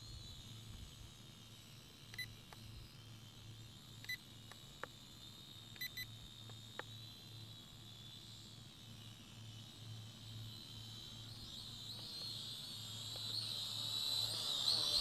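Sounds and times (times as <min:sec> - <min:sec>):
short electronic beeps: 0:05.8 - 0:06.1.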